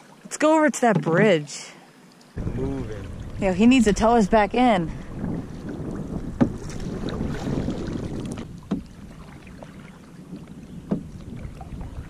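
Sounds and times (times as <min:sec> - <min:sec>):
water lapping around canoe: 0:00.0 - 0:12.0
wind on microphone: 0:02.4 - 0:12.0
sharp knocks: 0:05.4 - 0:06.8, 0:08.7 - 0:08.9.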